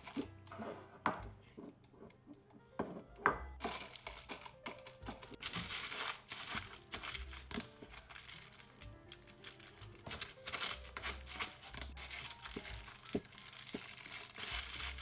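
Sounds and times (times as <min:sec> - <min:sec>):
cling film crinkling: 0:03.6 - 0:15.0.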